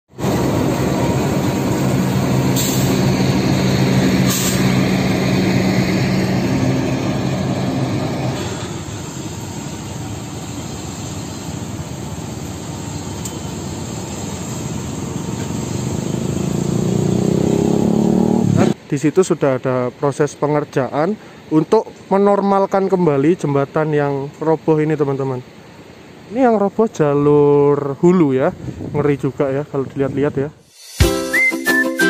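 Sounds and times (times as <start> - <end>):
locomotive engine humming: 0.1 - 17.2
train rumbling across viaduct: 0.1 - 17.6.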